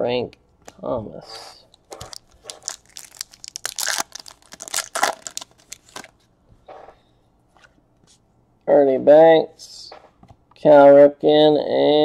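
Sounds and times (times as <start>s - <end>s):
wrapper crinkling: 1.8s - 6.2s.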